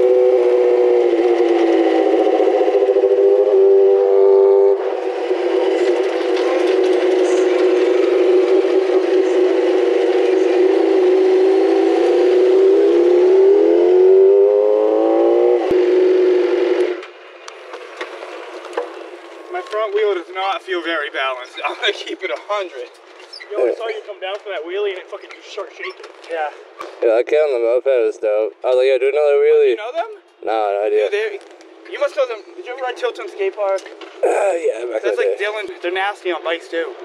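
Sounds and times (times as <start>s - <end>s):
motorbike engine revving high: 0.0s - 17.0s.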